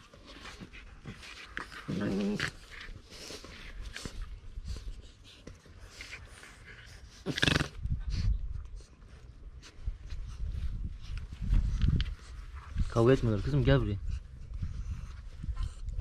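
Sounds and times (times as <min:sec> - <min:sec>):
puppies growling: 0:01.0 - 0:04.2, 0:06.2 - 0:07.9.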